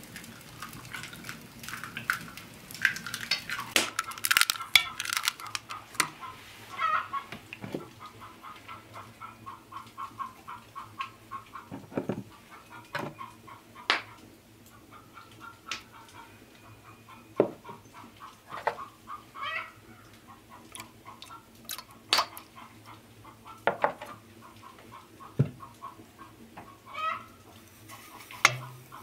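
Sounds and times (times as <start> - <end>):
hens clucking: 3.1 - 29.0
utensils clinking on metal pail: 3.8 - 6.1.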